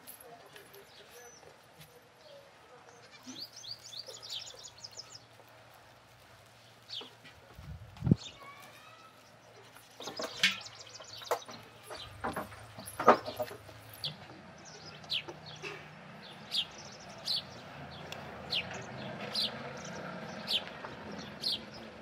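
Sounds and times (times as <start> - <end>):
small bird chirping: 3.1 - 5.4, 6.6 - 12.2.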